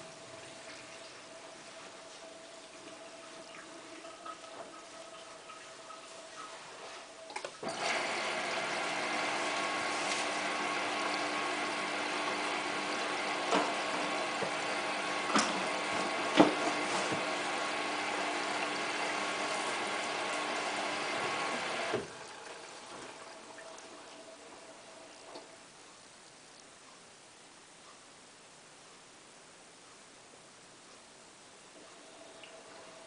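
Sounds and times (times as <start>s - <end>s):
water rushing into washing machine: 0.0s - 25.6s.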